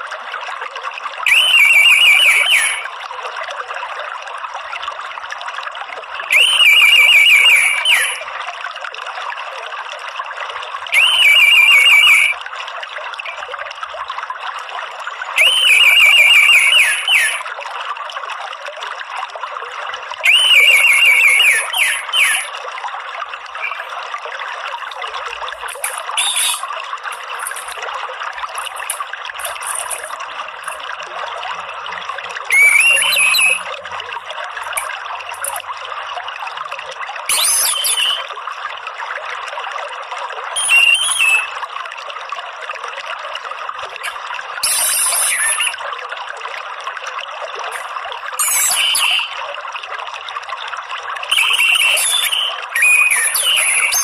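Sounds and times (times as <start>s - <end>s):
stream trickling: 0.0s - 54.0s.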